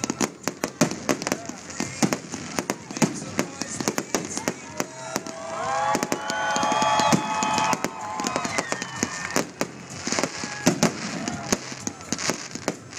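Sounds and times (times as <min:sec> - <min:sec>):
fireworks bangs and crackling: 0:00.0 - 0:12.9.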